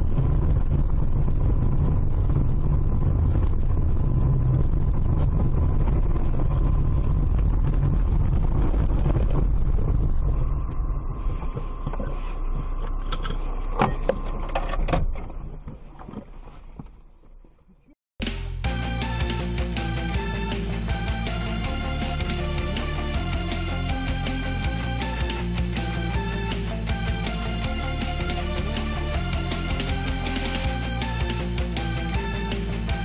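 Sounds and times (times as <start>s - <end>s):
car engine and road noise: 0.0s - 15.4s.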